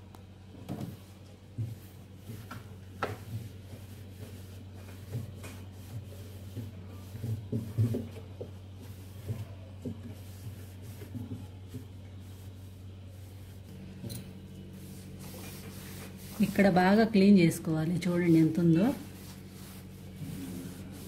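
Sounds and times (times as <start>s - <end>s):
steady low hum: 0.0s - 21.0s
cloth wiping plastic: 0.8s - 13.8s, 14.7s - 17.0s, 17.9s - 21.0s
light knocks and bumps: 4.8s - 12.0s.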